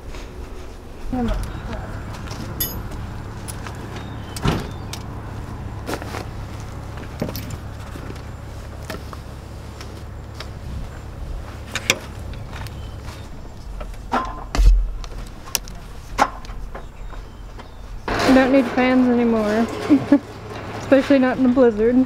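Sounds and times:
steady low rumble: 0:00.0 - 0:22.0
buckles and rings clinking: 0:02.2 - 0:05.1, 0:07.1 - 0:08.0.

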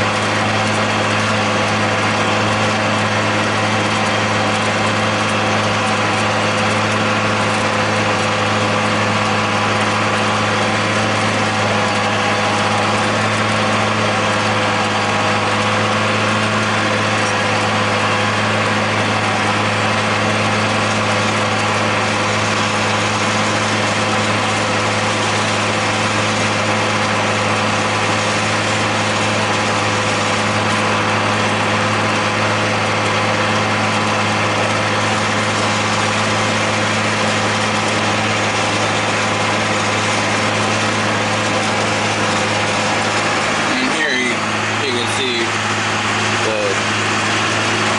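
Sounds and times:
tractor diesel engine droning: 0:00.0 - 0:47.9.

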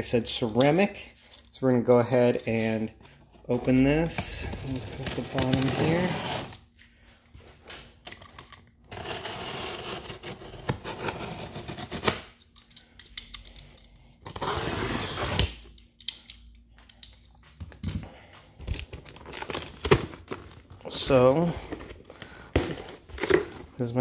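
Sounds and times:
knife cutting packing tape: 0:08.9 - 0:12.4, 0:14.3 - 0:15.7.

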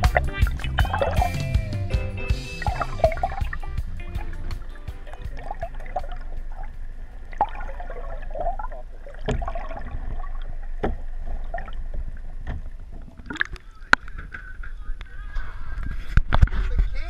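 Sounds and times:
water bubbling and gurgling: 0:00.8 - 0:01.3, 0:02.6 - 0:14.3
underwater low rumble: 0:02.4 - 0:16.9.

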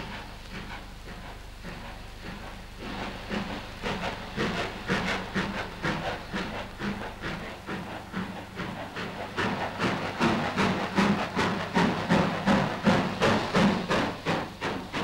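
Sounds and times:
steam locomotive chuffing: 0:00.0 - 0:15.0.

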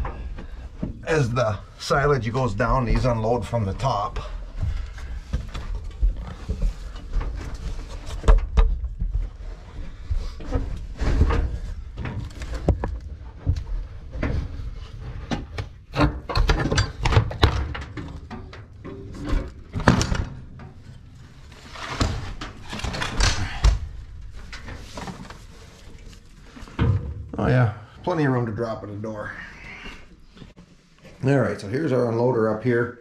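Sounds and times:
knocks thumps and scrapes: 0:02.2 - 0:27.5.

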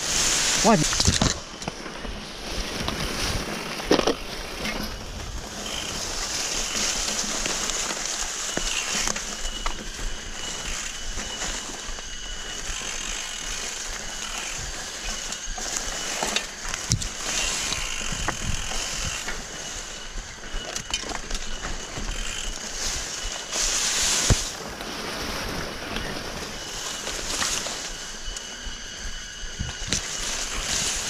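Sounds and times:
loud hiss: 0:00.0 - 0:01.5, 0:21.8 - 0:31.0
bike rattling and knocking: 0:00.0 - 0:24.7
bike tyres crunching on dirt: 0:00.0 - 0:31.0.

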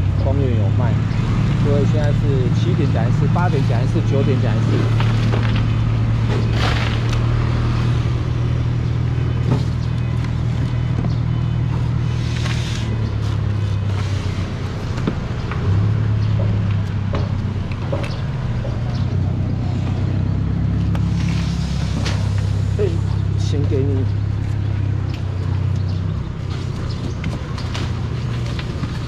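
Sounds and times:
low engine hum: 0:00.0 - 0:29.0.

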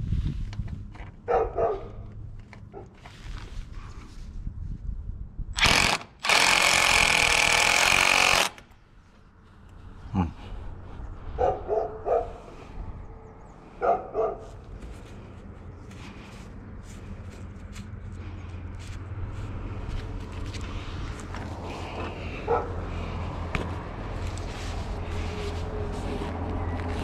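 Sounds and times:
steady low rumble: 0:00.0 - 0:01.0, 0:08.8 - 0:27.0
dog barking: 0:01.3 - 0:02.0, 0:11.4 - 0:12.5, 0:13.8 - 0:14.6, 0:22.5 - 0:22.7.

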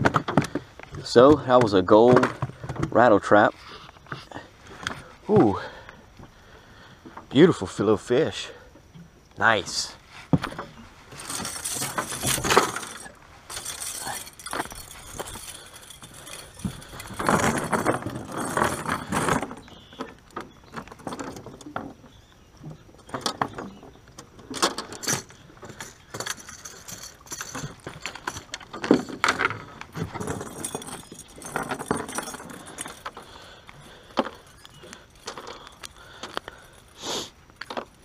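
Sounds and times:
knocks and rustling: 0:10.3 - 0:22.0, 0:22.6 - 0:35.8
metal chain jangling: 0:11.1 - 0:20.0, 0:24.6 - 0:37.0.

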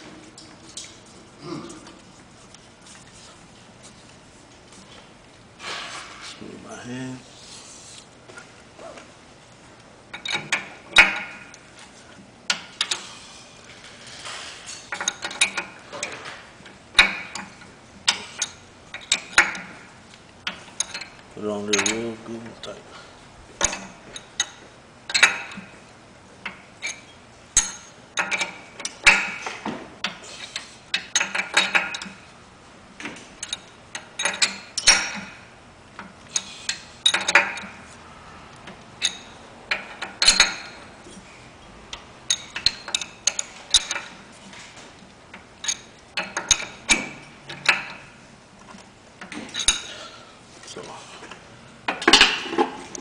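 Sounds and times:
wrench clinking on brass fittings: 0:20.5 - 0:22.8, 0:26.5 - 0:32.2, 0:33.4 - 0:35.4, 0:39.0 - 0:40.8, 0:42.3 - 0:44.2, 0:45.6 - 0:48.0, 0:49.3 - 0:50.0.

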